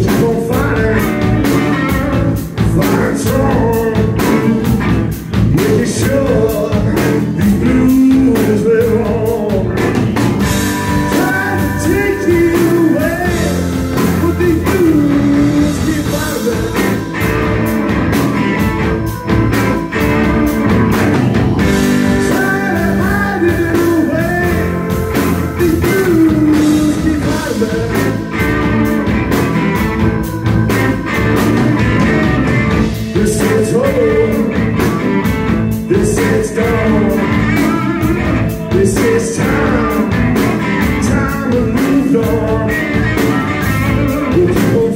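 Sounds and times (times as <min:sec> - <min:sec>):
blues-rock band playing: 0:00.0 - 0:44.9.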